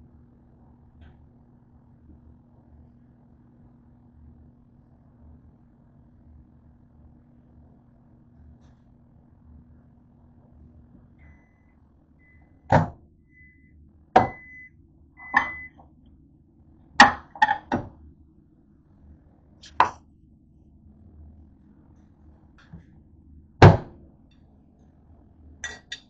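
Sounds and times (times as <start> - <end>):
microwave oven humming: 0.0 - 26.0
short high beeps: 13.4 - 15.8.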